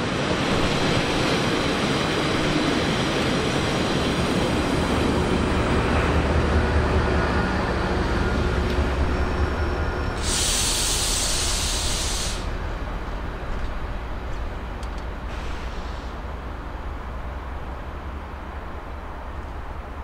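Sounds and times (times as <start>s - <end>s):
diesel locomotive engine drone: 0.0s - 20.0s
loud hiss: 10.2s - 12.6s.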